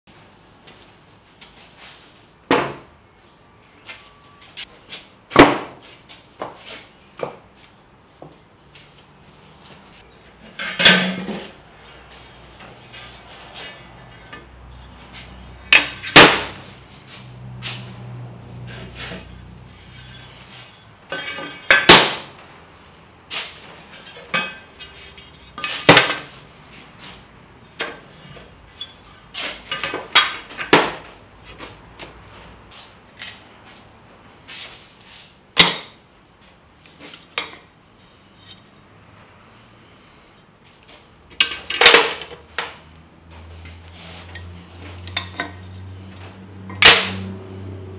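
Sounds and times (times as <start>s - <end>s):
metal clanks and knocks: 10.0s - 16.7s, 18.6s - 22.3s, 23.3s - 26.4s, 44.3s - 47.3s.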